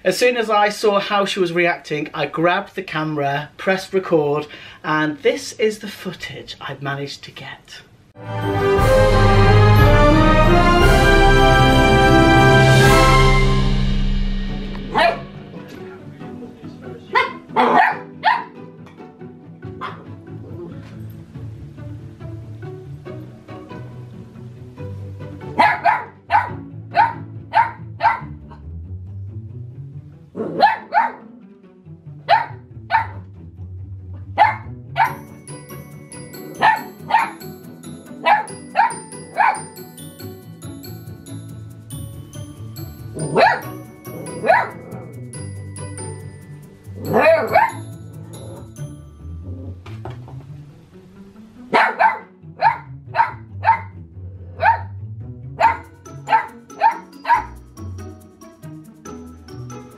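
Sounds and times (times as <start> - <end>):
background music: 8.0 - 59.9
puppy barking: 14.9 - 15.2, 17.1 - 18.6, 19.8 - 20.2, 25.5 - 28.3, 30.4 - 31.3, 32.3 - 33.2, 34.3 - 35.1, 36.4 - 37.4, 38.2 - 39.6, 43.2 - 45.0, 47.1 - 47.8, 51.7 - 54.0, 54.6 - 54.9, 55.6 - 57.6.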